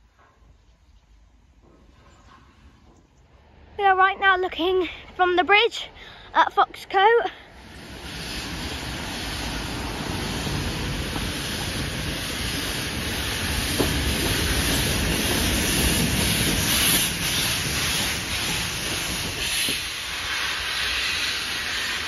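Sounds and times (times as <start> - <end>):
steam locomotive exhaust and hissing: 7.3 - 22.0.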